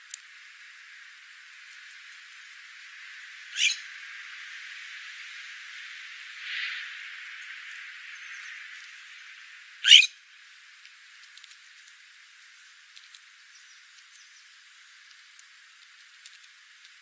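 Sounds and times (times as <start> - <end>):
beaks clicking on gravel: 1.5 - 2.9, 10.8 - 17.0
short harsh bird call: 3.6 - 3.8, 9.8 - 10.1.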